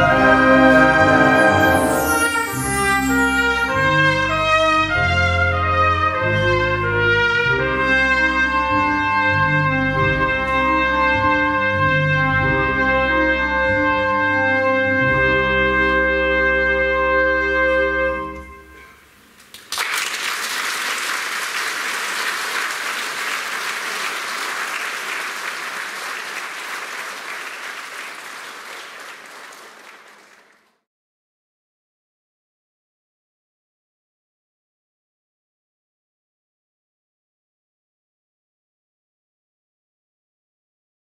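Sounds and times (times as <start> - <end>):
wind band chord: 0.0 - 19.0
audience applause: 19.4 - 30.8.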